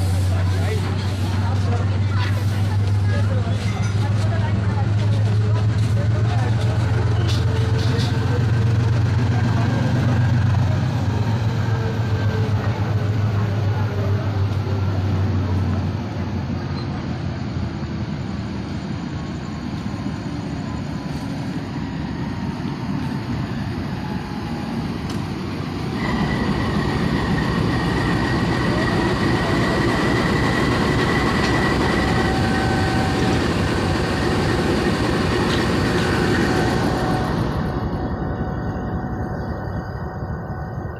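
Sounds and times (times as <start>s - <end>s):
train rumbling on rails: 0.0s - 40.9s
high steady squeal: 25.9s - 40.9s.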